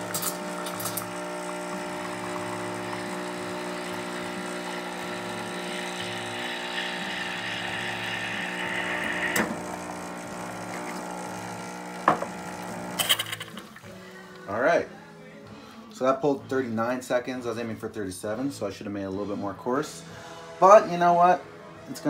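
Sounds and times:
espresso pump humming: 0.0 - 13.5
steam wand hissing: 4.9 - 9.5.

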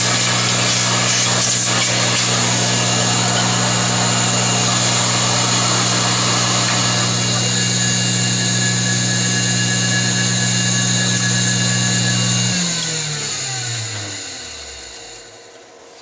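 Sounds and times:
milling machine motor spinning down: 0.0 - 15.7.

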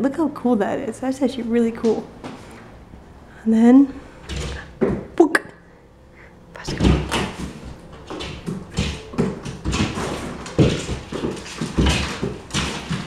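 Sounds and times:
cat paws scrabbling on wooden floor: 6.7 - 13.0.

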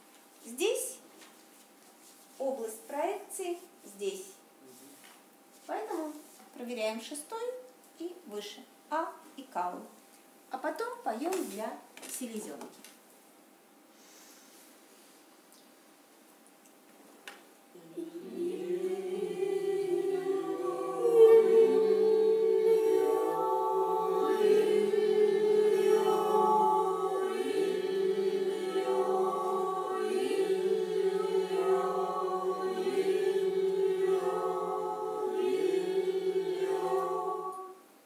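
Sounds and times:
voices chanting held tone: 17.8 - 38.0.

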